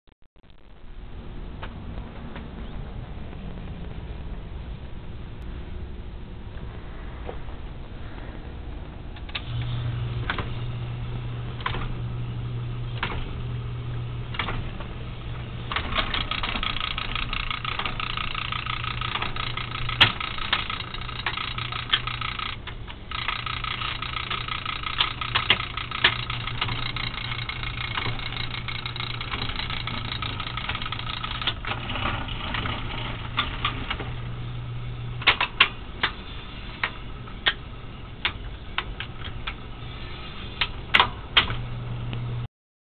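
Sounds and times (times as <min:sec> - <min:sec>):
low electrical hum: 0:00.4 - 0:42.5
mechanism whirring and clatter: 0:00.4 - 0:42.5
switches and relays clicking: 0:09.1 - 0:12.2, 0:12.8 - 0:42.2
sharp mechanical clicks: 0:15.7 - 0:34.1, 0:35.2 - 0:36.2.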